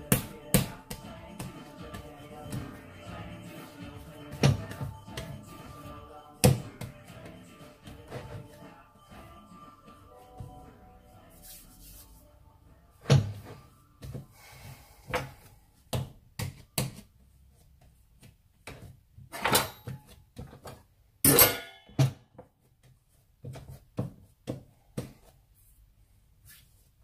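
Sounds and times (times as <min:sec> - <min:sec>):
dough thumping and slapping on board: 0:00.0 - 0:02.9, 0:04.2 - 0:05.4, 0:06.4 - 0:07.4, 0:15.9 - 0:17.1.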